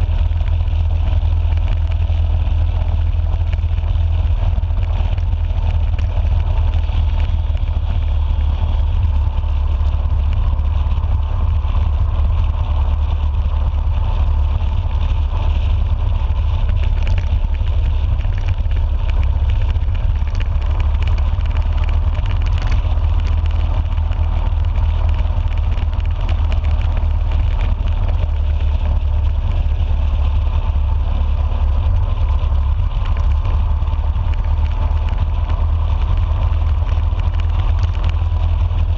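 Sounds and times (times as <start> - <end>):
motorcycle engine rumble: 0.0 - 38.9
wind on microphone: 0.0 - 38.9.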